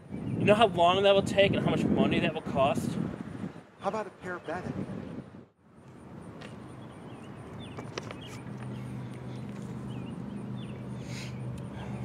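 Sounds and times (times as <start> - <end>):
small birds chirping: 5.8 - 12.0.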